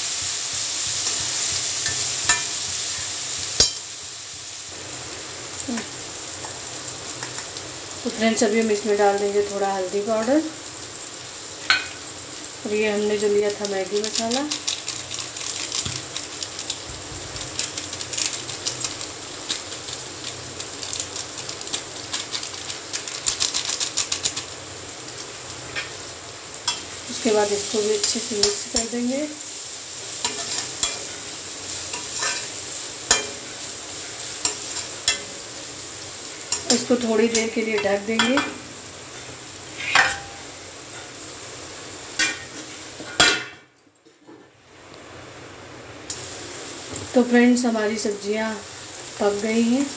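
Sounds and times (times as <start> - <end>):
vegetables sizzling in hot oil: 0.0 - 43.7, 44.6 - 49.9.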